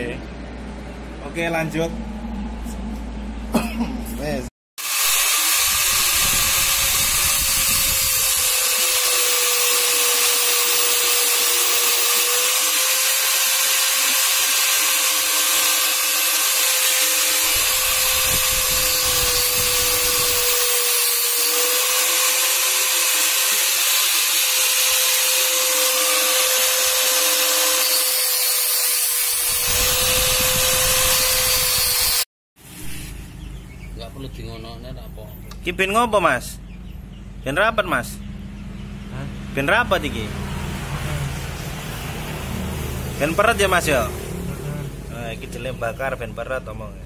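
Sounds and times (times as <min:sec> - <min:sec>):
angle grinder grinding metal: 0:04.8 - 0:32.3.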